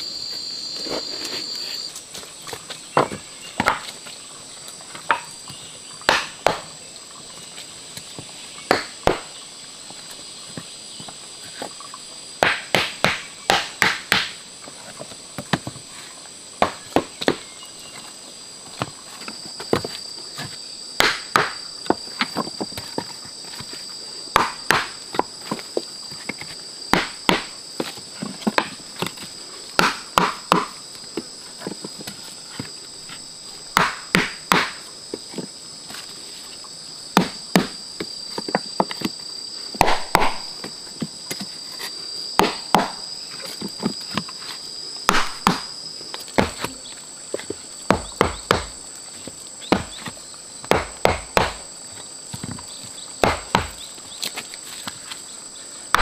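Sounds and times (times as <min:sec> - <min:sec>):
high insect drone: 0:00.0 - 0:56.0
lower insect tone: 0:00.0 - 0:56.0
wooden logs knocking together: 0:02.5 - 0:04.0, 0:04.9 - 0:06.8, 0:08.0 - 0:09.4, 0:12.4 - 0:14.4, 0:16.6 - 0:17.5, 0:18.8 - 0:23.7, 0:24.3 - 0:35.5, 0:37.2 - 0:41.5, 0:45.1 - 0:51.7, 0:52.3 - 0:55.1.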